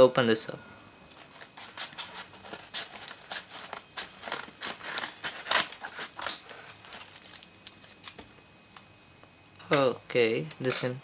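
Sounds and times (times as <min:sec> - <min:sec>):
paper crinkling: 0:01.1 - 0:08.2
scissors cutting paper: 0:01.1 - 0:08.2.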